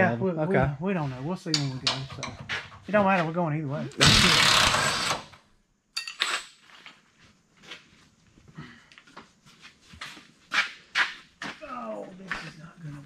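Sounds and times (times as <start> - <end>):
loud hiss: 4.0 - 5.3
metal tools clicking: 6.0 - 6.5
metallic clink: 6.0 - 6.5.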